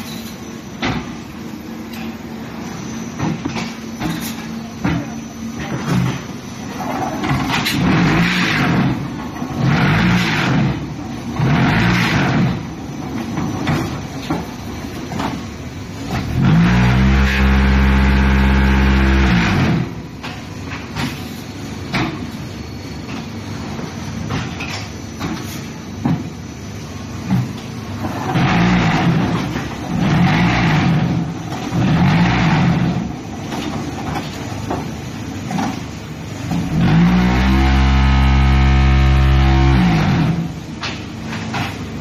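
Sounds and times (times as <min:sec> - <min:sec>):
machine clatter and knocks: 0:11.4 - 0:15.5, 0:27.2 - 0:35.9, 0:40.7 - 0:42.0
vibration motors humming: 0:13.9 - 0:20.2, 0:35.1 - 0:40.9
mechanical surges: 0:16.2 - 0:20.0, 0:36.5 - 0:40.6.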